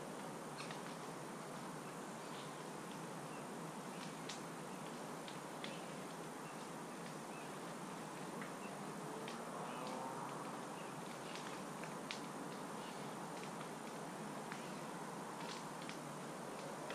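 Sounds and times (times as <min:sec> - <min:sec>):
steady outdoor hiss: 0:00.0 - 0:16.9.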